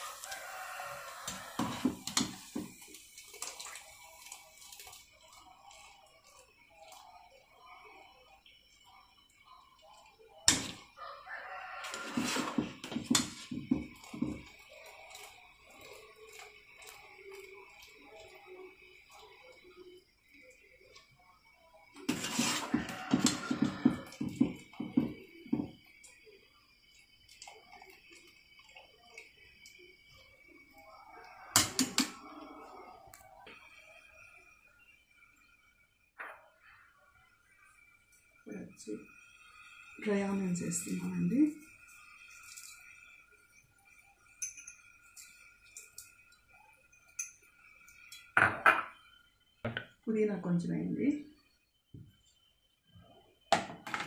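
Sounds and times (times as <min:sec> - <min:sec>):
metal ladle scraping steel pot: 0:11.8 - 0:13.5, 0:22.1 - 0:23.6.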